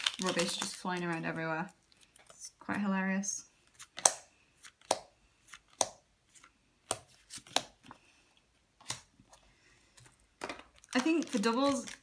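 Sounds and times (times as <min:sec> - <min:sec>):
trading cards snapping and slapping: 0:03.8 - 0:07.9.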